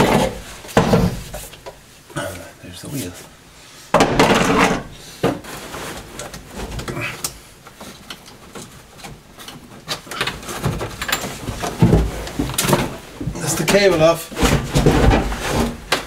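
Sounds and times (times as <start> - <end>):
loud scrape and knock: 4.0 - 6.0, 14.4 - 15.8
rustling plastic trim and wiring: 5.4 - 16.0.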